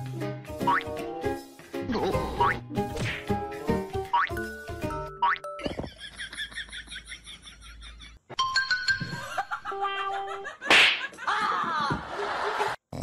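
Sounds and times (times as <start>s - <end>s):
giggling laughter: 5.6s - 8.2s, 9.1s - 12.8s.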